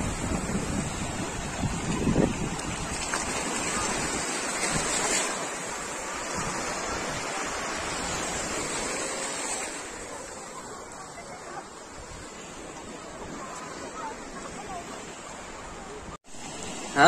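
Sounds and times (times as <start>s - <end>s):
wind rumble on microphone: 0.0s - 5.5s
surf washing onto beach: 0.0s - 17.0s.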